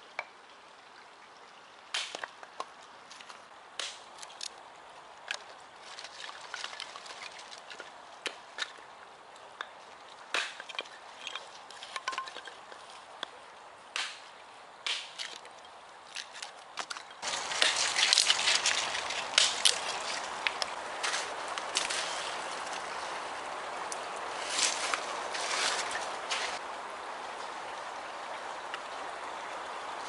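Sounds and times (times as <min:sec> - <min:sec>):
hatchet splitting wood: 0:10.3 - 0:11.0, 0:14.8 - 0:15.5.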